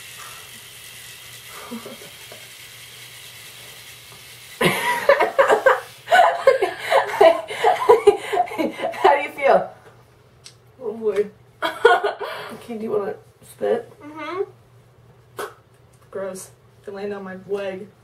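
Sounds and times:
electric toothbrush buzzing: 0:00.0 - 0:08.0.

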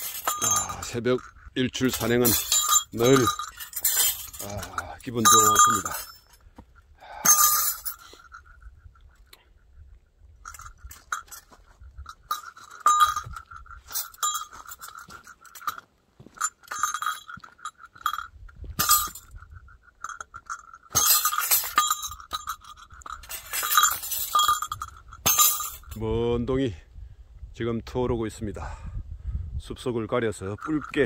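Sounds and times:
high steady ringing: 0:00.0 - 0:09.4, 0:10.4 - 0:26.0, 0:30.1 - 0:31.0
footsteps crunching on dirt trail: 0:10.7 - 0:18.8.

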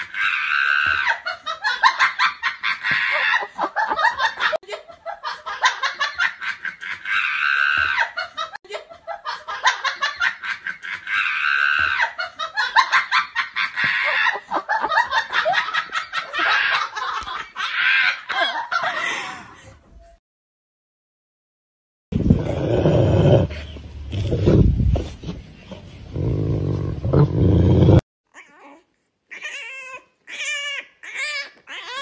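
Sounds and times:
high-pitched laughter: 0:00.0 - 0:19.7.

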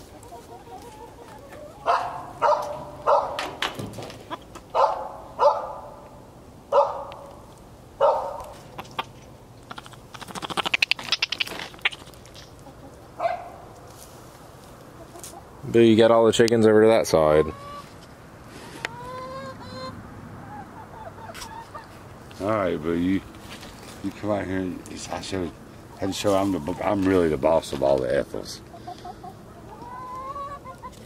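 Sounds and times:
hens squawking: 0:00.0 - 0:03.5, 0:08.0 - 0:13.6, 0:14.8 - 0:15.6, 0:17.1 - 0:22.2, 0:25.0 - 0:31.0
hens clucking: 0:00.0 - 0:05.4, 0:06.8 - 0:15.8, 0:16.7 - 0:31.0.

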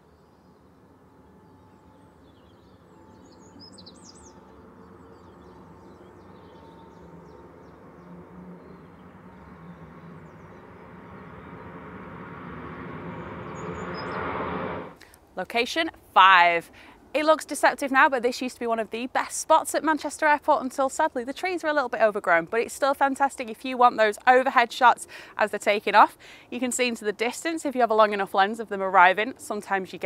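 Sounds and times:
bird chirping: 0:00.0 - 0:15.0
jet airliner engine roar: 0:00.8 - 0:15.0.

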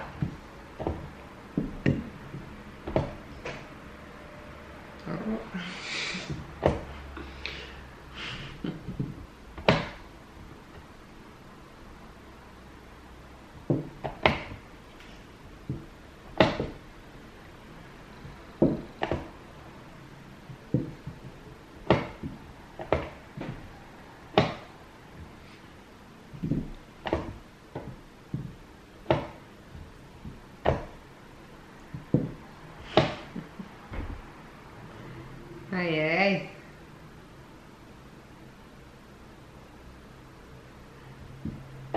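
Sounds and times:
chess pieces knocking on board: 0:00.0 - 0:03.6, 0:08.8 - 0:10.0, 0:13.6 - 0:14.6, 0:15.6 - 0:16.8, 0:18.2 - 0:19.4, 0:20.5 - 0:21.2, 0:21.8 - 0:23.7, 0:24.3 - 0:25.3, 0:26.4 - 0:31.0, 0:31.9 - 0:33.4.

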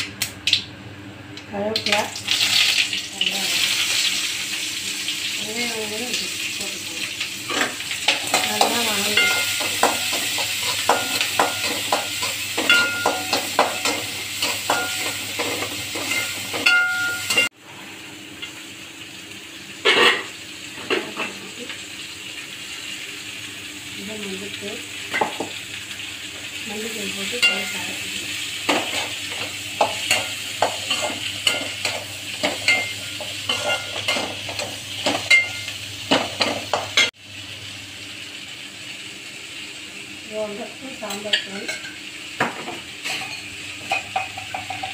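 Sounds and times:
vegetables sizzling in oil: 0:01.6 - 0:44.9.

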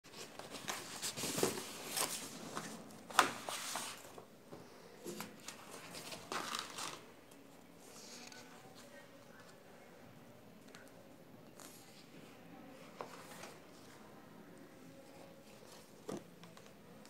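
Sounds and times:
paper rustling and crinkling: 0:00.1 - 0:04.2, 0:05.0 - 0:07.0
sharp paper crackle: 0:05.5 - 0:07.0.

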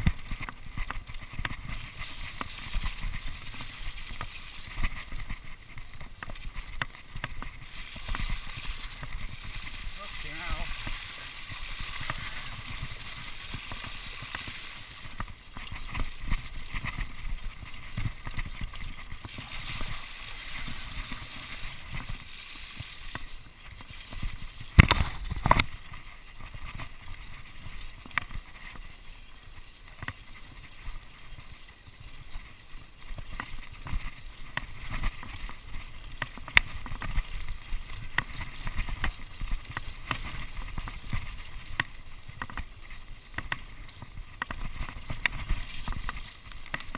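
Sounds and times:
bike knocking on bumps: 0:00.0 - 0:22.3, 0:33.1 - 0:46.9
bike rattling over stones: 0:00.0 - 0:46.9
bike tyres splashing through water: 0:00.0 - 0:46.9.

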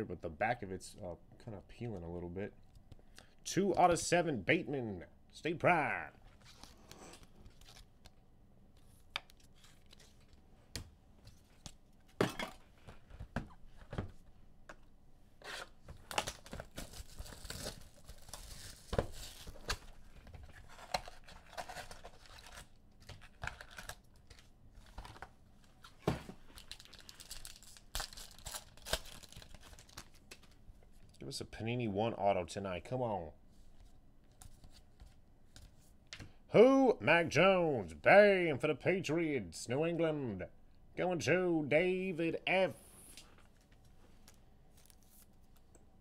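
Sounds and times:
card packs tearing open: 0:15.5 - 0:19.9, 0:20.6 - 0:24.4, 0:26.6 - 0:30.2
wrappers crinkling: 0:16.0 - 0:19.8, 0:26.4 - 0:30.5.

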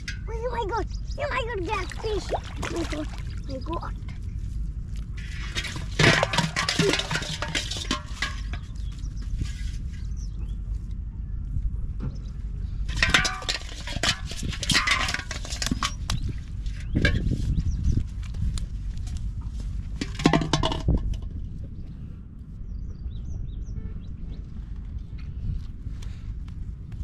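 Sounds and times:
steady low rumble: 0:00.0 - 0:27.0
water sloshing in pot: 0:01.7 - 0:03.8, 0:05.2 - 0:09.8, 0:12.9 - 0:17.4
metal pot clinking and rattling: 0:05.2 - 0:09.7, 0:12.9 - 0:17.4, 0:20.0 - 0:21.2.

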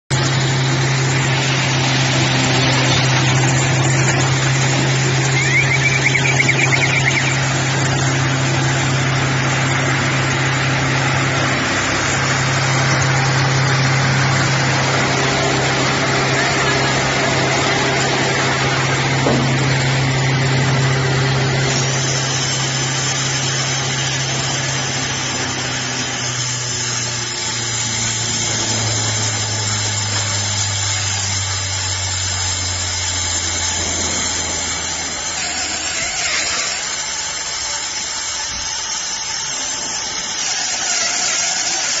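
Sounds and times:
baler mechanical noise: 0:00.1 - 0:42.0
motor hum: 0:00.1 - 0:42.0.

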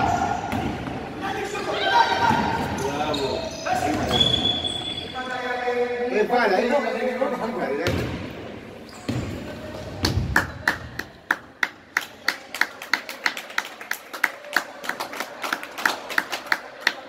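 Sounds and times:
spectators clapping rhythmically: 0:10.1 - 0:17.0.

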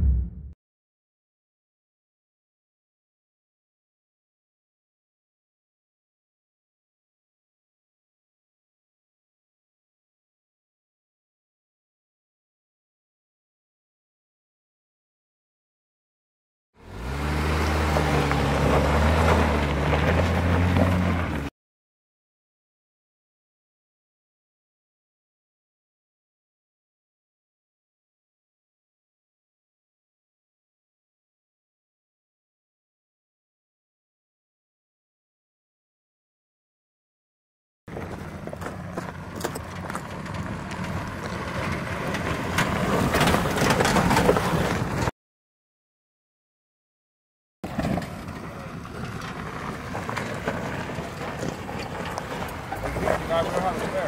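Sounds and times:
truck engine under load: 0:16.8 - 0:21.5, 0:37.9 - 0:45.1, 0:47.6 - 0:54.0
tyres crunching on gravel: 0:16.8 - 0:21.5, 0:37.9 - 0:45.1, 0:47.6 - 0:54.0.

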